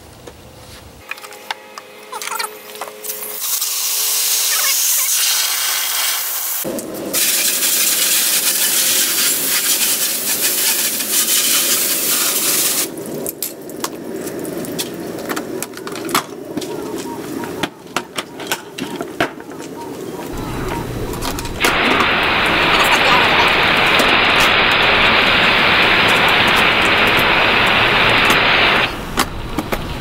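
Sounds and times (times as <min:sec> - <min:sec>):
hose water spraying and splashing: 0:02.2 - 0:15.2, 0:20.3 - 0:30.0.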